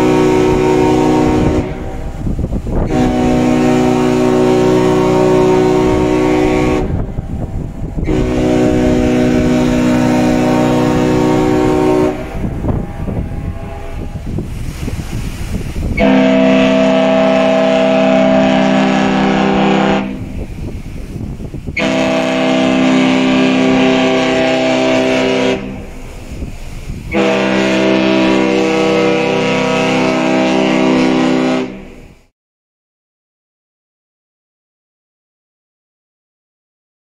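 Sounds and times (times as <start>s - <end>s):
deep ship horn blasts: 0.0s - 32.2s.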